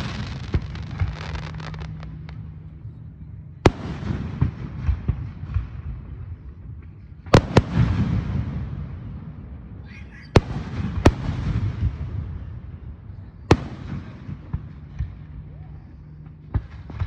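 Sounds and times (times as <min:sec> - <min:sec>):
firework bangs: 0:00.0 - 0:02.5
firework crackles: 0:00.0 - 0:02.7.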